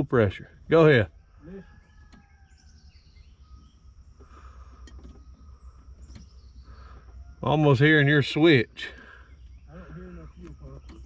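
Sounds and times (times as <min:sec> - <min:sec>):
insect calls: 0:00.0 - 0:11.0
faint bird calls: 0:00.8 - 0:11.0.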